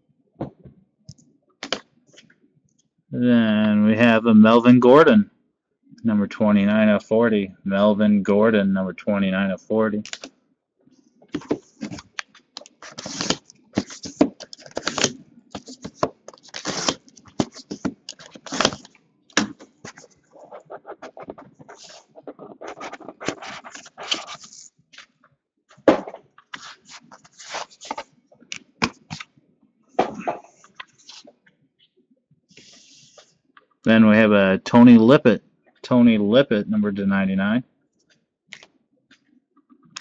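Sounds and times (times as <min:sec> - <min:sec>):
cards rustling: 0:10.1 - 0:10.3, 0:11.3 - 0:25.2, 0:26.4 - 0:29.3, 0:30.3 - 0:31.3.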